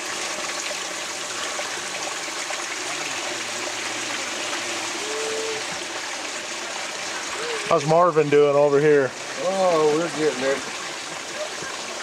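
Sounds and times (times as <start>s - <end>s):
water pouring through a sluice: 0.0s - 12.0s.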